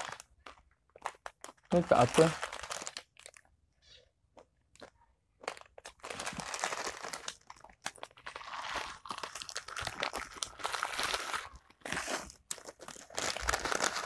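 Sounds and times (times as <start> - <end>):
foil snack packet crinkling: 0.0 - 3.5, 4.8 - 14.0
crumbs crunching: 4.4 - 14.0.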